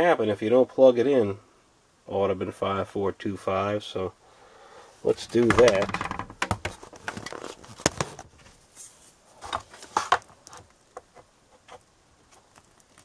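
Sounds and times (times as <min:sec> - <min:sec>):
power cord clicks and knocks: 0:05.3 - 0:07.2.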